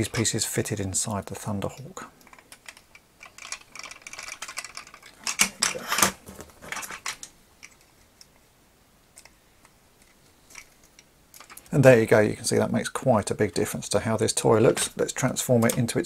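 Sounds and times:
hard plastic toy pieces clicking: 0:02.2 - 0:08.3, 0:10.0 - 0:11.7.

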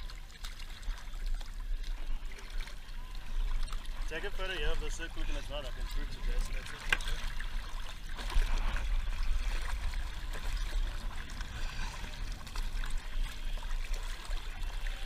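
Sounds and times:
sea water splashing against boat: 0:00.0 - 0:15.0
low rumble: 0:08.2 - 0:14.8.

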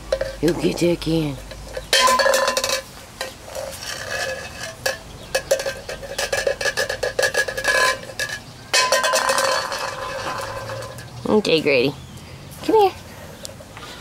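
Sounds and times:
can scraping across concrete: 0:00.1 - 0:11.2.

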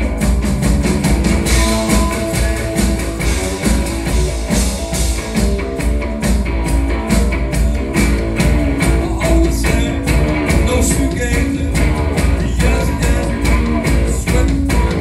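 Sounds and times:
amplified guitar: 0:00.0 - 0:15.0
drum beat: 0:00.0 - 0:15.0
heavy bass: 0:00.0 - 0:15.0.

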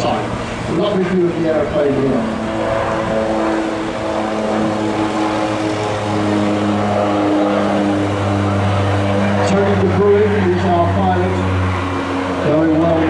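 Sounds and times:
turboprop aircraft flying past: 0:00.0 - 0:13.0.

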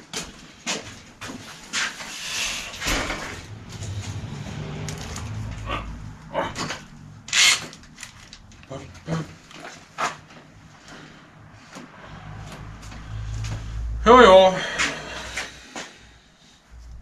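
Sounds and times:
low rumbling: 0:02.8 - 0:07.4.

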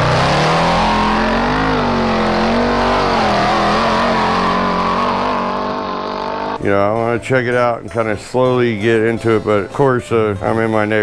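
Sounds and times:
small engine revving high: 0:00.0 - 0:06.6.

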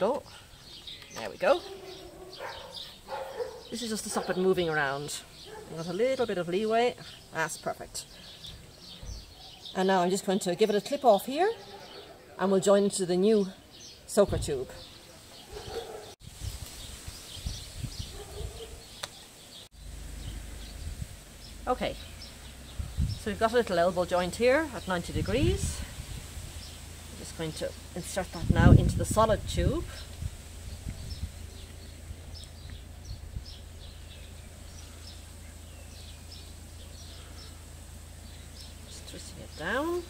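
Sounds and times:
birds chirping: 0:00.0 - 0:40.0
steady low rumble: 0:19.8 - 0:40.0.

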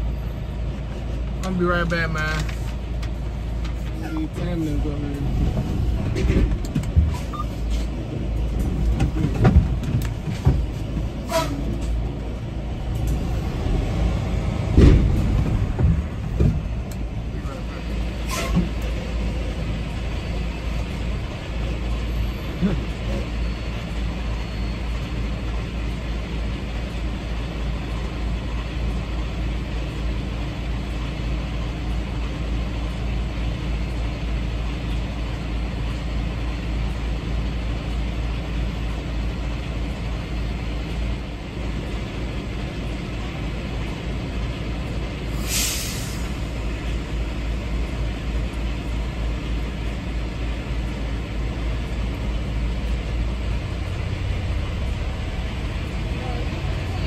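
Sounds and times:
diesel truck engine idling: 0:00.0 - 0:57.0
air brake hiss: 0:45.3 - 0:46.4.

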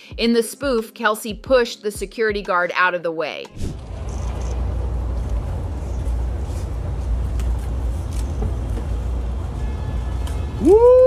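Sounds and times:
idling vehicles rumble: 0:03.8 - 0:11.0.

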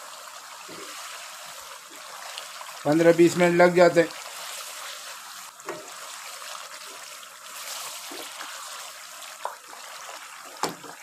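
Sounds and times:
meat sizzling in hot fat: 0:00.0 - 0:11.0.

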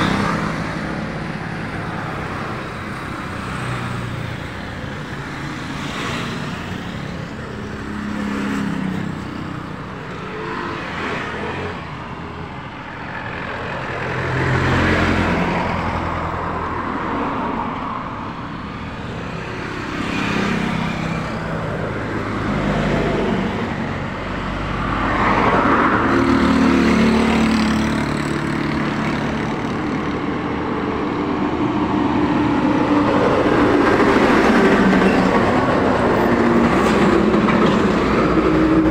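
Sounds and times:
heavy truck passing: 0:00.0 - 0:38.9
highway traffic passing: 0:00.0 - 0:38.9.

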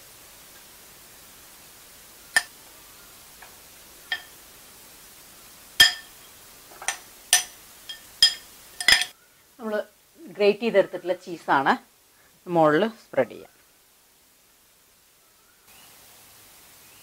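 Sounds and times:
spoon clinking on wire rack: 0:04.1 - 0:04.4, 0:05.8 - 0:06.2, 0:06.8 - 0:09.1.

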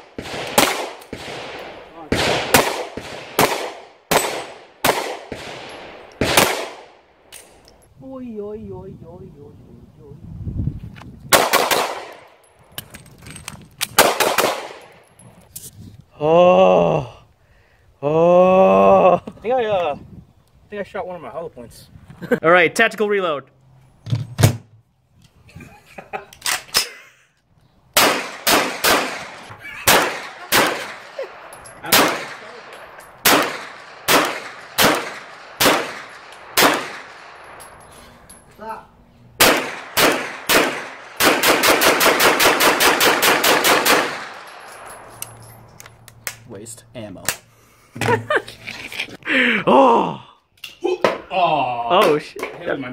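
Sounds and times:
pistol shots with echo: 0:00.0 - 0:07.0, 0:11.3 - 0:12.3, 0:14.0 - 0:14.9, 0:28.0 - 0:37.8, 0:39.4 - 0:45.1
gunshots with short echo: 0:28.0 - 0:31.2, 0:33.2 - 0:37.4.

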